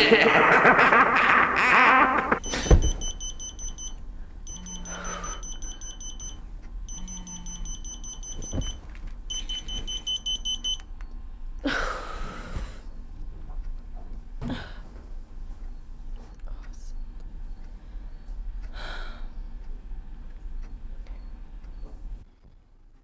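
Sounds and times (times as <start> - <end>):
bedding rustling: 2.4 - 3.9, 7.7 - 10.8
phone alarm beeping: 2.4 - 10.9.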